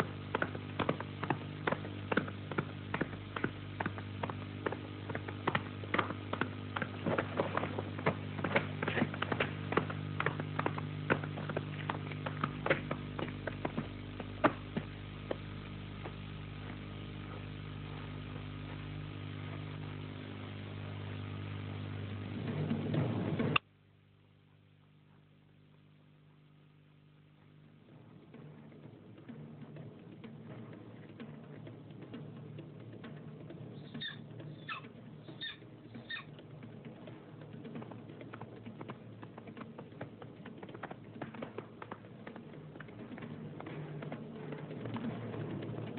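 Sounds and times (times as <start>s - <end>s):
low electrical hum: 0.0s - 45.9s
high falling cries: 33.8s - 36.3s.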